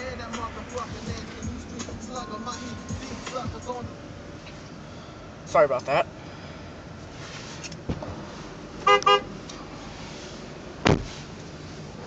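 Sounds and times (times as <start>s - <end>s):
car engine running: 0.0s - 12.0s
car horn toots: 8.8s - 9.3s.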